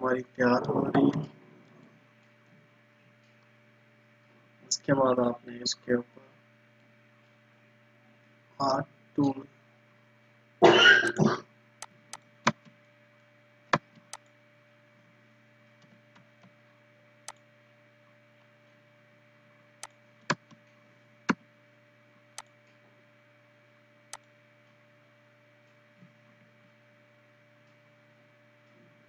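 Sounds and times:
steady electrical hum: 0.0 - 29.0
computer mouse clicking: 13.7 - 14.3, 17.2 - 17.5, 19.8 - 20.7.

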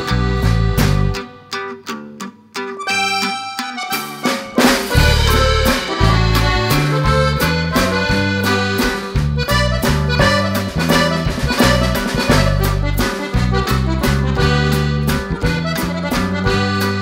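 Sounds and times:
background music with beat: 2.8 - 17.0.

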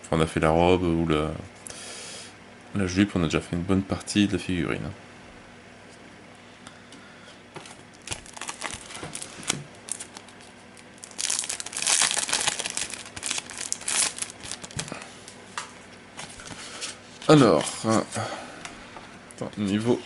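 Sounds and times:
plastic wrap crinkling and tearing: 7.6 - 15.1.

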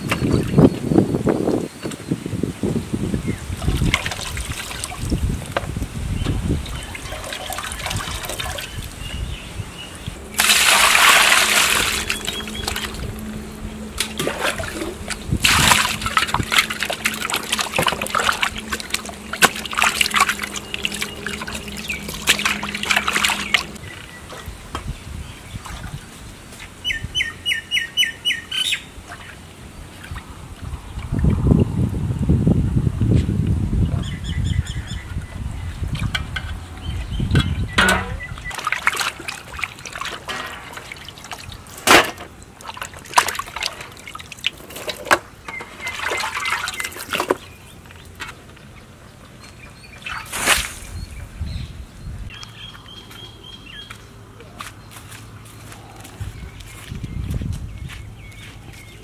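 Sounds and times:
water splashing and trickling: 1.8 - 27.0, 28.9 - 31.5, 33.8 - 51.6
loud rush of water: 10.3 - 13.2
crackling splashes: 10.3 - 13.3, 14.0 - 24.5, 38.5 - 48.7
bird chirping: 12.0 - 14.0, 18.6 - 25.7, 26.8 - 29.4, 36.5 - 38.7, 45.4 - 59.0.

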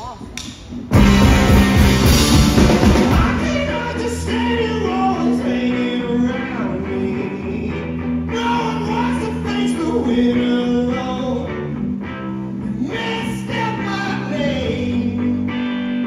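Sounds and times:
rock band playing: 0.7 - 16.0
lead vocal singing: 2.6 - 11.9, 12.6 - 15.8.

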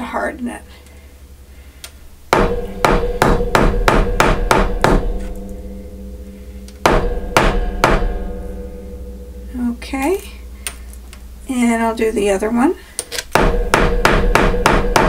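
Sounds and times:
mallet striking metal on anvil: 2.3 - 9.7, 13.3 - 15.0.

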